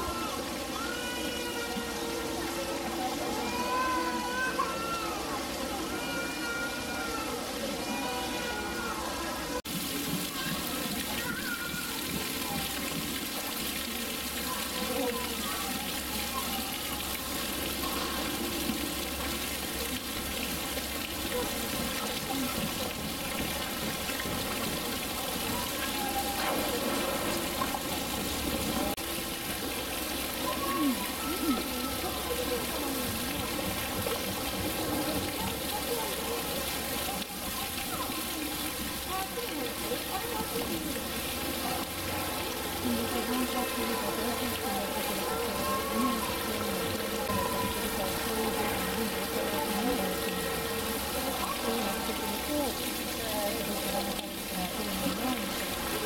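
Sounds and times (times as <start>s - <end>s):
chatter of visitors: 0.0s - 56.0s
faint voices: 0.0s - 56.0s
running water: 0.0s - 56.0s.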